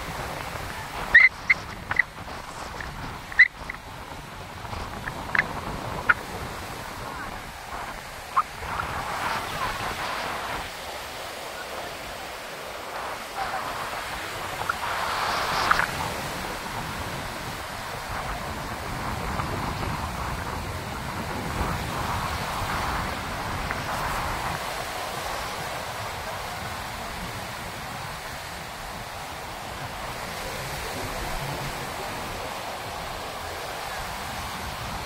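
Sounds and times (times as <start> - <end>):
sea surf washing up beach: 0.0 - 35.0
wind buffeting microphone: 0.0 - 35.0.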